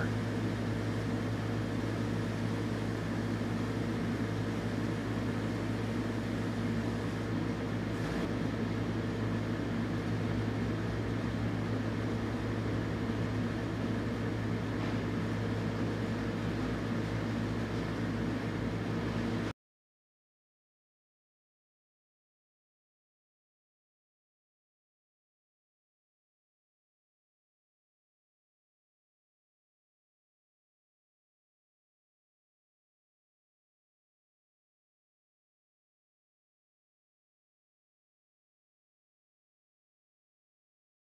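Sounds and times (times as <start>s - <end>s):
mechanical hum with low drone: 0.0s - 19.6s.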